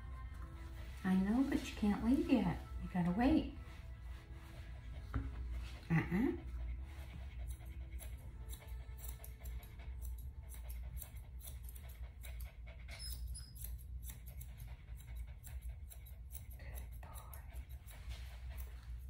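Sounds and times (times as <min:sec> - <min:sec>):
scissors snipping fur: 0:05.3 - 0:19.0.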